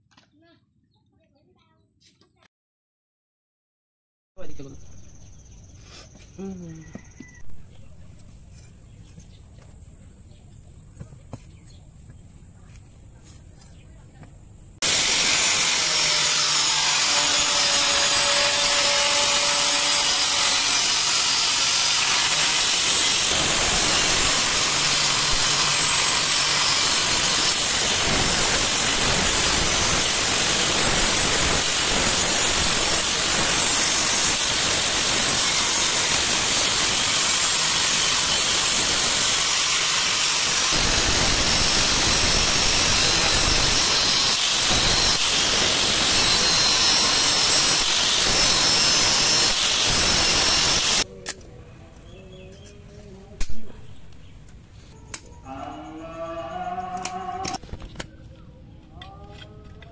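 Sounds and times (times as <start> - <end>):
angle grinder cutting steel: 14.8 - 51.1.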